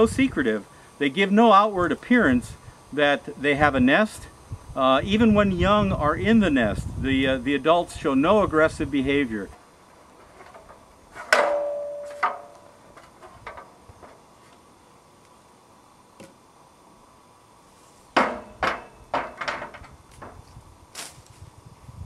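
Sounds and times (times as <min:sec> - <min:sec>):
metal ladder clanking: 0:10.2 - 0:14.2, 0:18.2 - 0:20.4.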